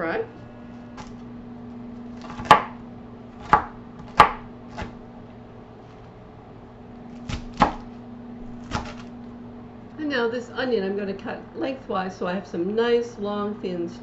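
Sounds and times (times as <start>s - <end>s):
knife chopping cabbage on board: 2.2s - 2.8s, 3.4s - 5.0s, 7.2s - 7.9s, 8.6s - 9.1s.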